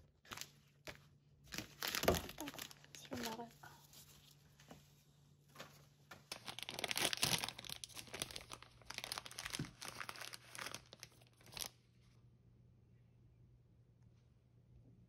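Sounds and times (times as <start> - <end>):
plastic bag crinkling: 0.2 - 4.3, 5.6 - 11.8.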